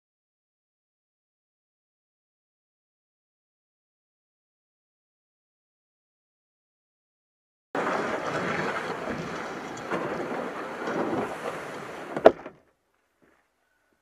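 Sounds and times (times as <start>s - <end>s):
kayak hull scraping over grass and gravel: 7.8s - 13.5s.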